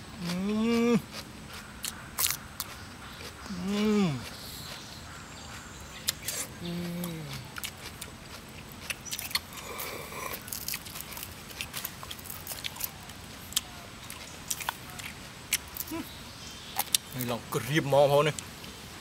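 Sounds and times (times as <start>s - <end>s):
chewing: 0.2s - 16.1s
snail shells clicking and crunching: 1.1s - 3.6s, 4.2s - 16.0s, 16.8s - 17.3s.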